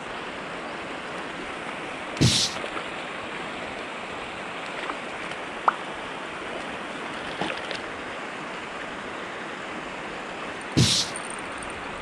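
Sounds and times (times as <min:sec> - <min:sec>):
pond water and breeze rushing: 0:00.0 - 0:12.0
sharp click: 0:10.8 - 0:11.4.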